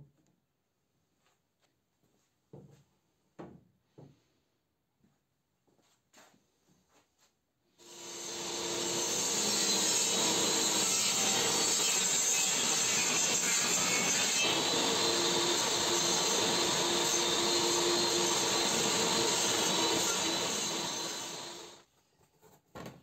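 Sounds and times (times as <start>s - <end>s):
table saw cutting wood: 7.8s - 21.8s.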